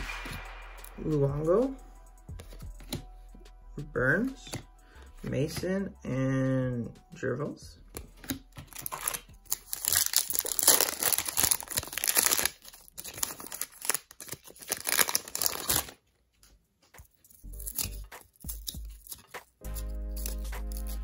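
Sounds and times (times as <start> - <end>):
cards handled softly: 2.4 - 3.1
foil wrapper tearing and crinkling: 8.2 - 16.0, 17.6 - 21.0.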